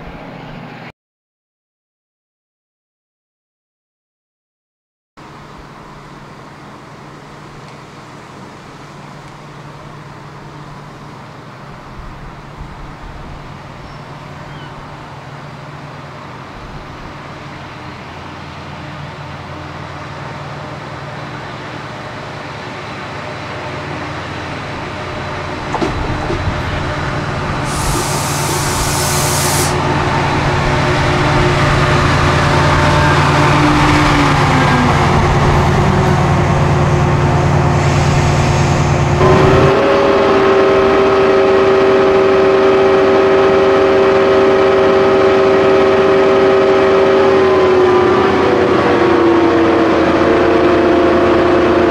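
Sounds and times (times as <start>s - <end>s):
diesel locomotive engine: 0.0s - 0.9s, 5.2s - 51.9s
air hiss: 27.6s - 29.8s
falling pitch tone: 39.1s - 51.9s.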